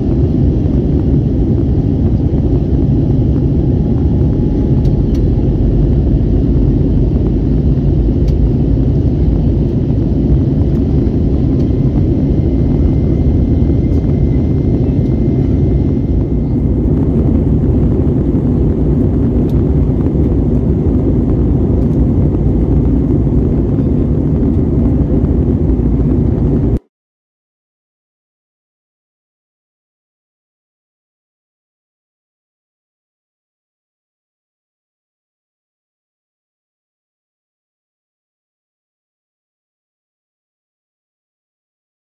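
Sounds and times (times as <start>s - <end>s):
airplane cabin engine rumble: 0.0s - 26.9s.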